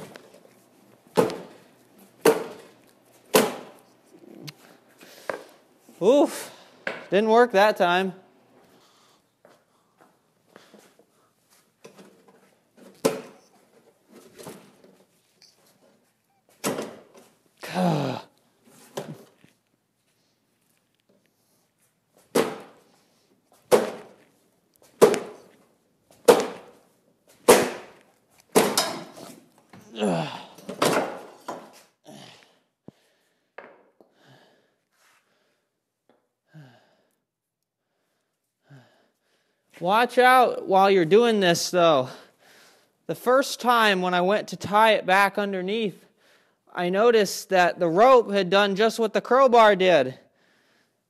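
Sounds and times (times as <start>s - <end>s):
breathy sighs: 29.9s - 30.7s, 36.5s - 37.2s.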